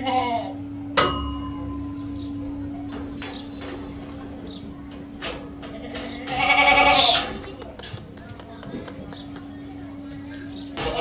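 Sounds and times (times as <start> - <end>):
metallic clank with ring: 1.0 - 2.3.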